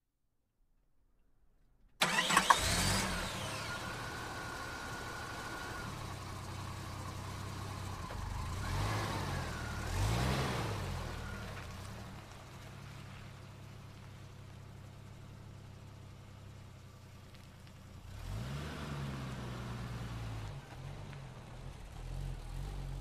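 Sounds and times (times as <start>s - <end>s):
engine revving: 2.0s - 6.2s, 7.9s - 11.9s, 18.0s - 20.8s
car engine starting and idling: 2.0s - 23.0s.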